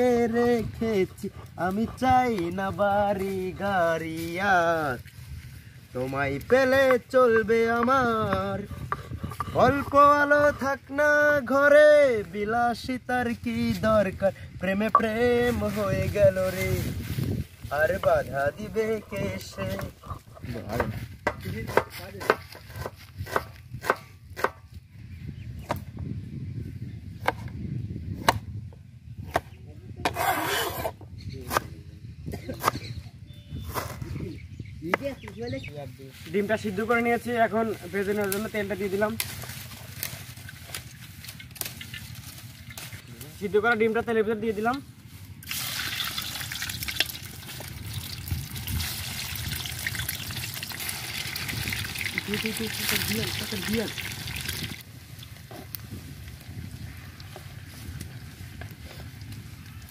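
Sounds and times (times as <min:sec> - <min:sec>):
knife chopping on cutting board: 0:20.8 - 0:24.6
eggs sizzling in hot oil: 0:45.4 - 0:54.8.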